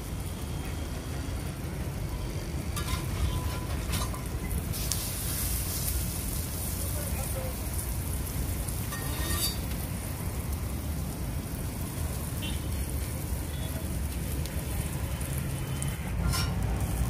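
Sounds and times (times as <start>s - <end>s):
omelette sizzling in butter: 0.0s - 17.0s
steel spatula scraping griddle: 2.7s - 6.2s, 8.7s - 10.0s, 16.1s - 17.0s.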